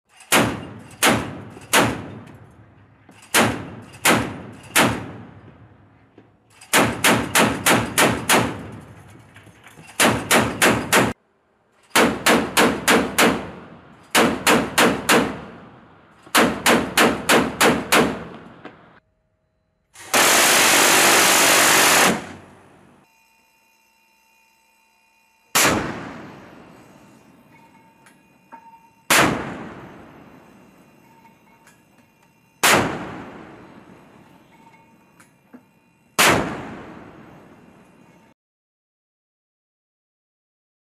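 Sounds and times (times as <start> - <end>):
chain gun firing bursts: 6.6 - 8.7, 9.9 - 11.2, 11.9 - 15.4, 20.1 - 22.4
gatling gun firing burst: 20.1 - 22.4.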